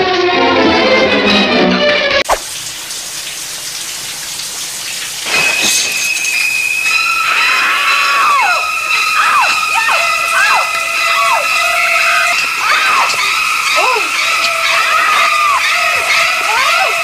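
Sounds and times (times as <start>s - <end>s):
shower spray hissing: 2.3s - 7.8s
shrill high strings: 5.6s - 17.0s
woman screaming: 7.3s - 17.0s.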